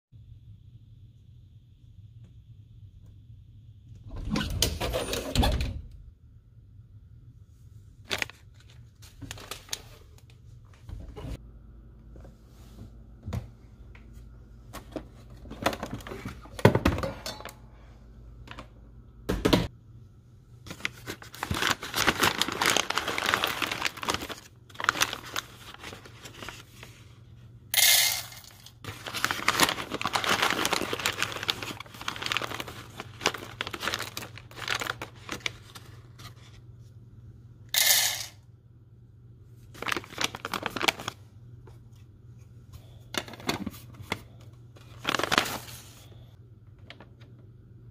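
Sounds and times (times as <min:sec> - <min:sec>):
foil bag crinkling and rustling: 0:08.0 - 0:10.2, 0:20.7 - 0:27.0, 0:28.5 - 0:36.6, 0:39.7 - 0:41.2, 0:43.2 - 0:46.2
steady low hum: 0:10.0 - 0:21.3
foil bag ripping: 0:20.8 - 0:26.6, 0:28.9 - 0:35.8, 0:39.8 - 0:41.1, 0:45.0 - 0:45.8.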